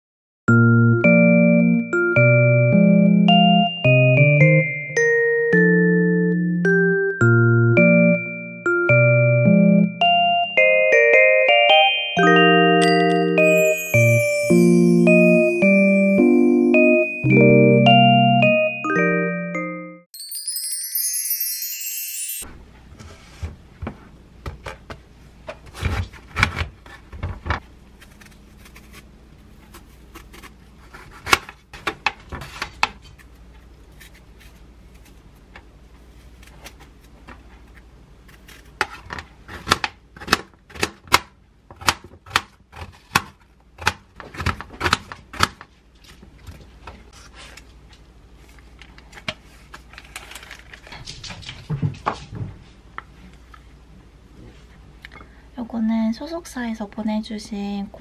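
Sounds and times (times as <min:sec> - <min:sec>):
knife peeling and slicing apple: 0:27.7 - 0:31.6, 0:32.4 - 0:41.2.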